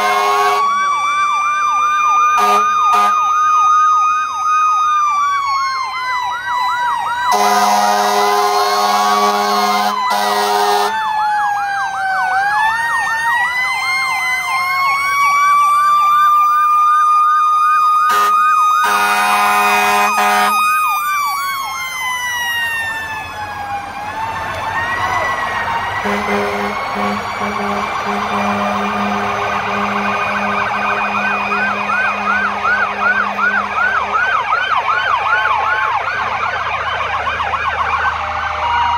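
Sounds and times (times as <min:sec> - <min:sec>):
loud horn blasts: 0:00.0 - 0:00.8, 0:02.4 - 0:03.2, 0:07.3 - 0:11.0, 0:18.1 - 0:20.6, 0:26.0 - 0:34.4
siren wail: 0:00.0 - 0:38.9
siren yelp: 0:00.0 - 0:38.9.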